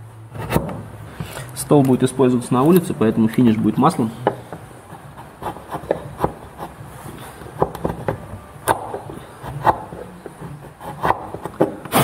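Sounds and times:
chisel cutting and scraping wood: 0:00.4 - 0:01.5, 0:04.6 - 0:12.0.

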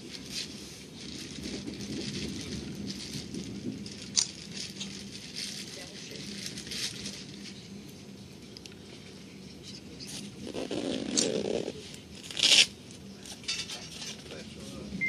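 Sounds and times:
loud rustle: 0:00.0 - 0:07.6
train rumble: 0:00.0 - 0:09.5
light rattles and crackles: 0:00.0 - 0:15.0.

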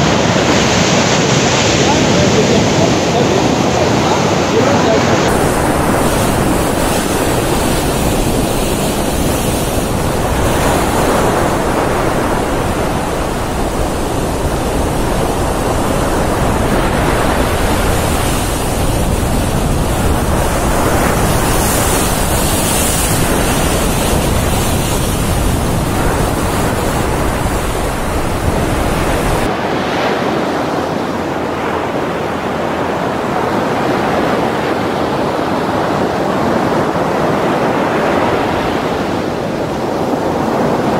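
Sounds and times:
surf breaking over rocks: 0:00.0 - 0:31.8
wind buffeting microphone: 0:00.0 - 0:40.9.

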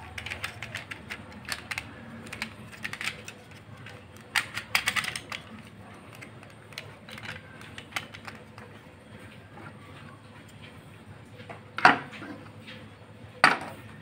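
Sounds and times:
plastic clock movement clicking: 0:00.0 - 0:08.8.

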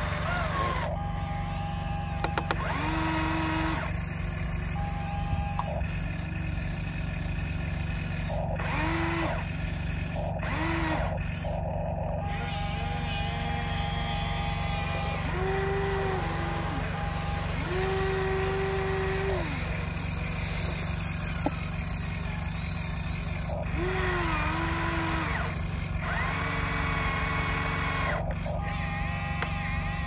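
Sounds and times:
electric motors whining: 0:00.0 - 0:30.0
steady low hum: 0:00.0 - 0:30.0.

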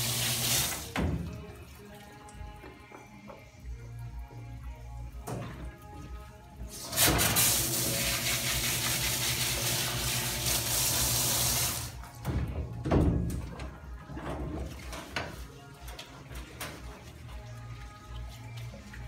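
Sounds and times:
hose sprayer jetting water: 0:00.0 - 0:01.0, 0:06.6 - 0:12.0.

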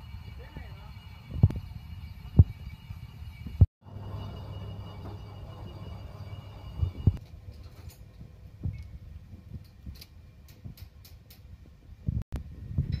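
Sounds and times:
lathe whining and humming: 0:00.0 - 0:07.2.

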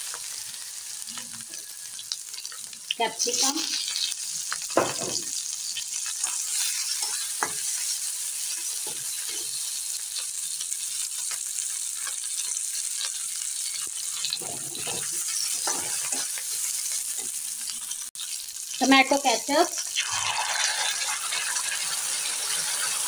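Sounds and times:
vegetables sizzling in hot oil: 0:00.0 - 0:23.0
spatula scraping and tapping pan: 0:06.3 - 0:09.6, 0:12.0 - 0:16.8.

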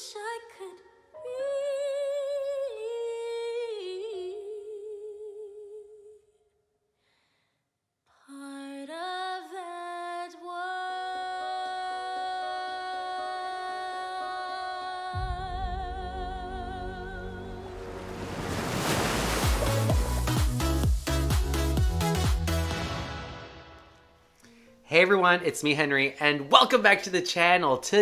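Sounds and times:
woman singing with vibrato: 0:00.0 - 0:06.2, 0:08.3 - 0:18.1.

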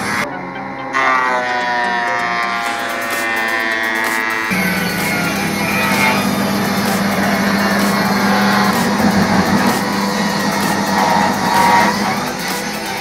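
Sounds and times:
table saw cutting wood: 0:00.0 - 0:13.0.

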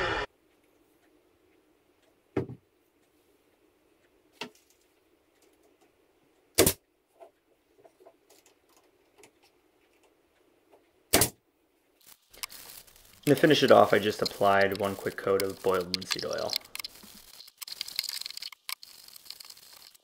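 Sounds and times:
nailer shot into wood: 0:06.6 - 0:06.8, 0:11.1 - 0:11.4.

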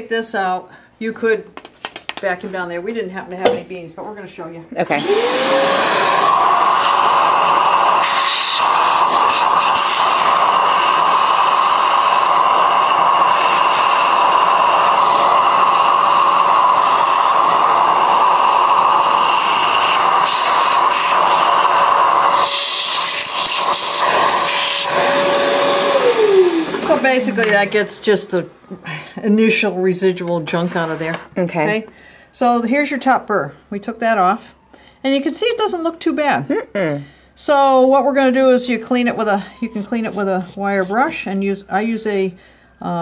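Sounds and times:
shop vacuum whine: 0:04.9 - 0:28.8.

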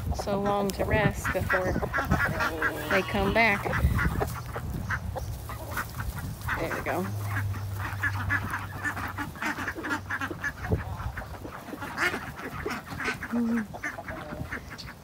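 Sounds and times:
ducks quacking: 0:00.0 - 0:15.0.

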